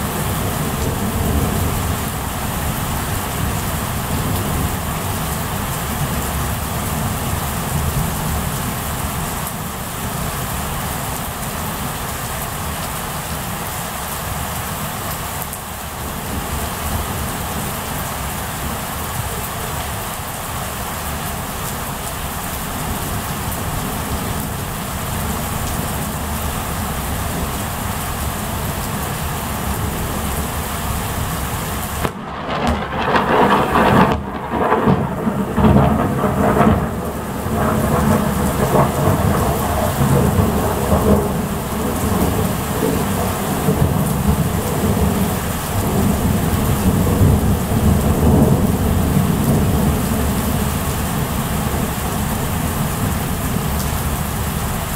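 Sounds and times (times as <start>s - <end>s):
steady rain: 0.0s - 54.9s
thunder rolling and rumbling: 32.0s - 54.5s.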